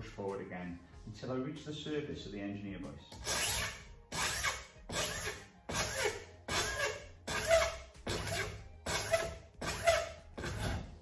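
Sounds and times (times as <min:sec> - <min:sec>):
hand file rasping on plastic: 0:03.2 - 0:10.9.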